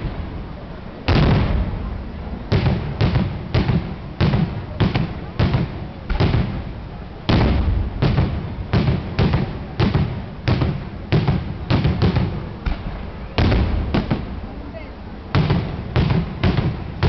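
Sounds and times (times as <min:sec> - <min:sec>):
fireworks bursting with bangs: 0:00.0 - 0:17.0.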